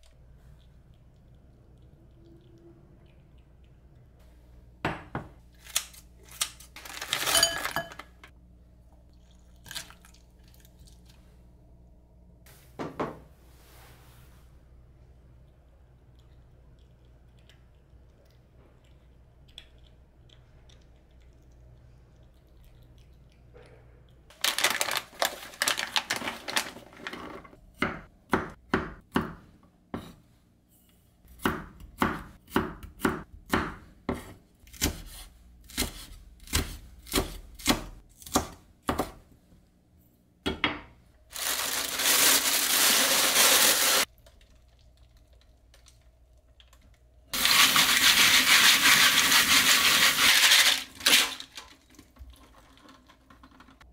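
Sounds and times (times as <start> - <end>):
knife chopping on cutting board: 31.4 - 39.2.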